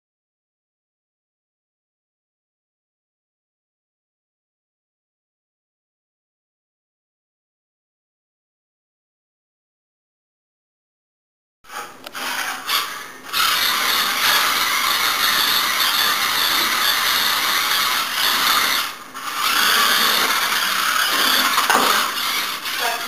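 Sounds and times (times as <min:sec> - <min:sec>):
toy car electric motor whirring: 0:11.7 - 0:23.0.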